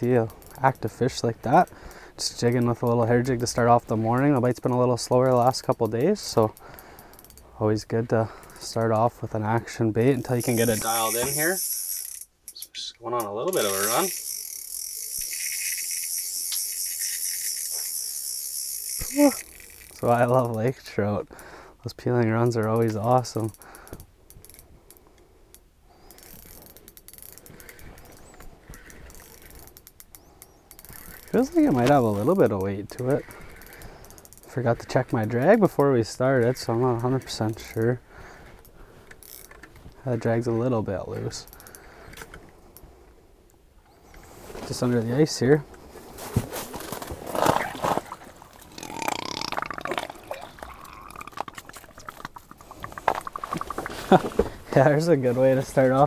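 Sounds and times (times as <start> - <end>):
fishing reel drag clicking: 0.2 - 1.0, 5.3 - 7.5, 10.2 - 12.7, 13.5 - 20.6, 23.5 - 35.8, 36.4 - 39.7, 41.4 - 42.3
water sloshing and gurgling: 47.2 - 54.7.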